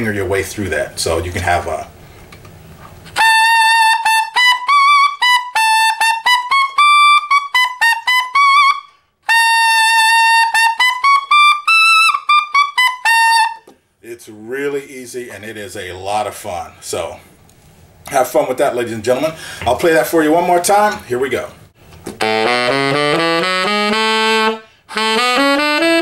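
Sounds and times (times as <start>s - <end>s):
tenor saxophone high notes: 3.2s - 13.6s, 22.2s - 26.0s.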